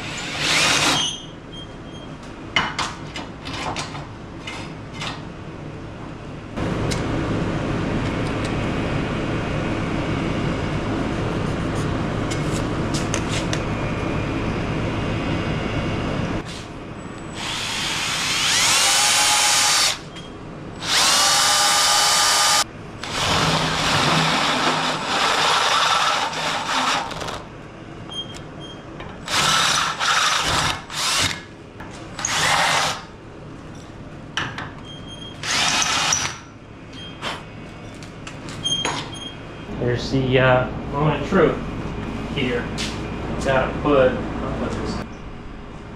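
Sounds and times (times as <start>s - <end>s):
cordless drill boring steel: 0.0s - 1.2s, 17.3s - 20.0s, 20.8s - 27.4s, 29.2s - 31.4s, 32.2s - 33.1s, 35.4s - 36.4s
steady hum: 4.1s - 45.9s.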